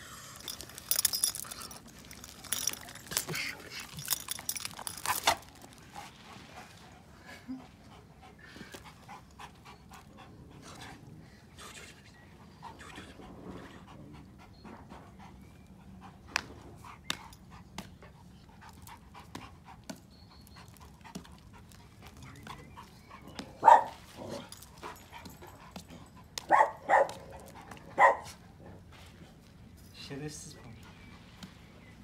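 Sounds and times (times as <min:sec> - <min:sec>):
dog panting softly: 0:05.9 - 0:11.4, 0:12.3 - 0:26.4
loud dog barks: 0:23.6 - 0:24.0, 0:26.5 - 0:27.3, 0:28.0 - 0:28.3.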